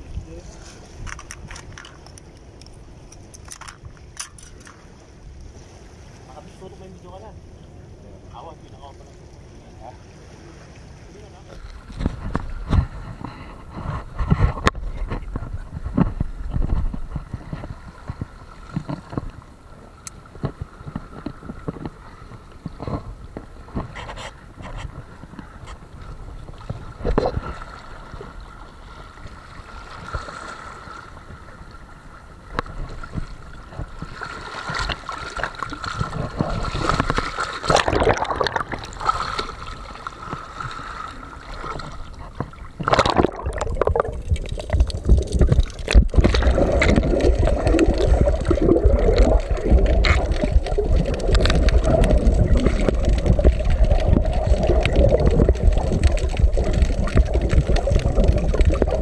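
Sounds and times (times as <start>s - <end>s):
muffled underwater rumble: 6.5s - 29.5s, 34.8s - 59.0s
sea waves splashing over rocks: 8.3s - 59.0s.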